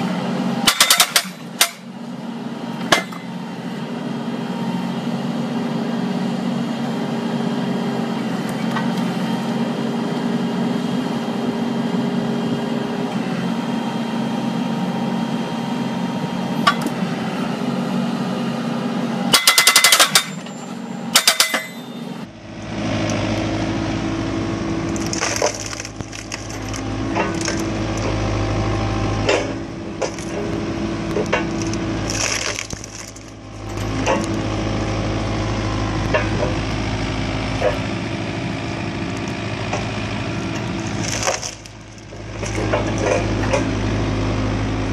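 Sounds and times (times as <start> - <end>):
machine engines humming: 0.0 - 44.9
wood cracking and splintering: 24.9 - 28.2, 31.1 - 34.4, 40.6 - 43.7.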